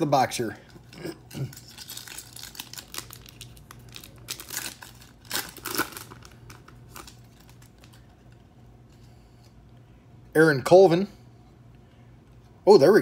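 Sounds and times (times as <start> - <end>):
foil wrapper tearing and crinkling: 1.3 - 8.1.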